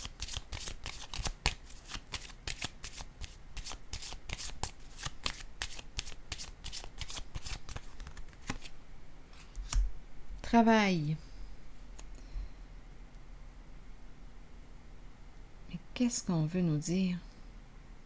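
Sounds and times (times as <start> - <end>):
cards shuffling: 0.0 - 8.8, 9.4 - 9.8.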